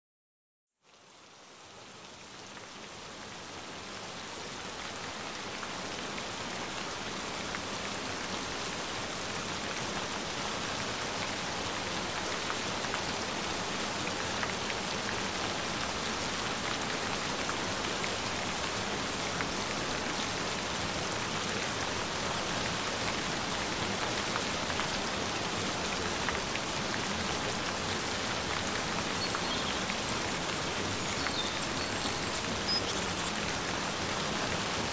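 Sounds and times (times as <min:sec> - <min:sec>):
gentle rain falling: 0:00.8 - 0:34.9
raindrops ticking: 0:27.6 - 0:33.9.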